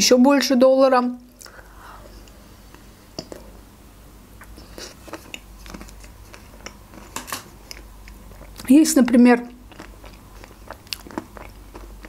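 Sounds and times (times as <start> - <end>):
chewing mouth sounds: 4.4 - 8.7, 9.5 - 12.0
ice cream coating crunching: 4.4 - 12.0.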